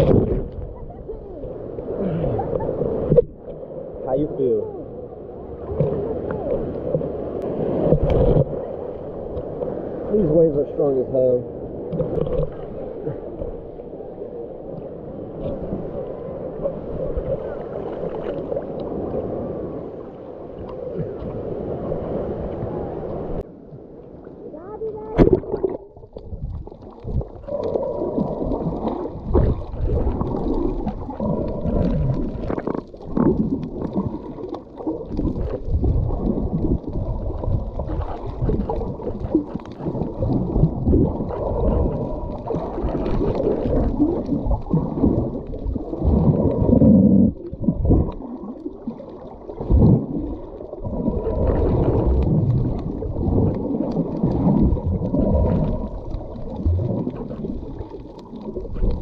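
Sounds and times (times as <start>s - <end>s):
underwater rumble and gurgling: 0.0s - 59.0s.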